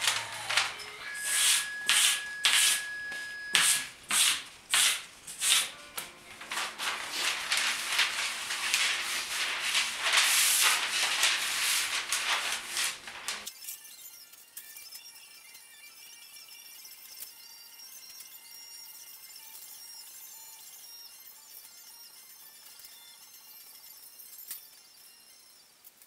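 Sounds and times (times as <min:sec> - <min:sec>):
paper rustling on wooden table: 0:00.0 - 0:02.9, 0:06.3 - 0:13.5.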